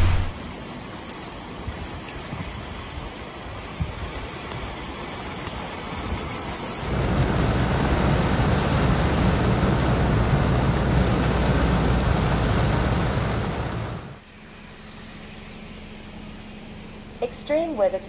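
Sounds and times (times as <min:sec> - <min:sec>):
heavy rain on vehicle: 0:03.2 - 0:14.2.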